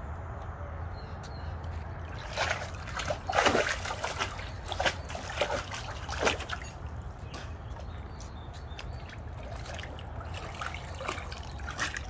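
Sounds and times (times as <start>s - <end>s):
dog splashing in water: 2.1s - 7.9s, 8.6s - 12.0s.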